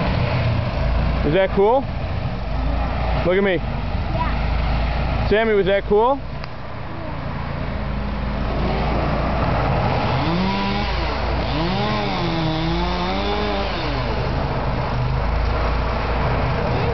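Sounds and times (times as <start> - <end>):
chainsaw engine revving: 8.5 - 14.5.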